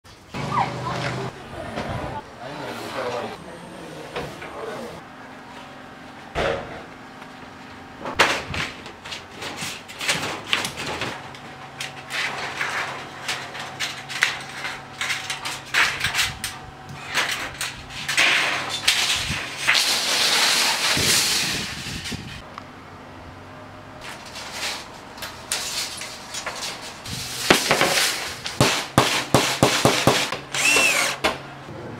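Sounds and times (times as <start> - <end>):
metallic strips crinkling and rattling: 8.1 - 22.4, 24.0 - 28.6.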